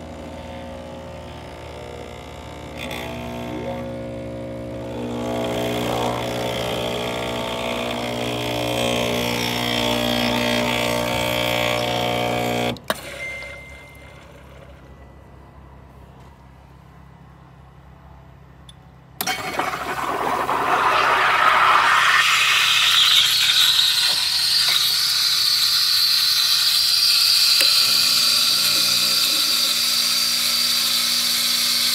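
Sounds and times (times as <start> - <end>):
steam wand hissing: 19.3 - 31.9.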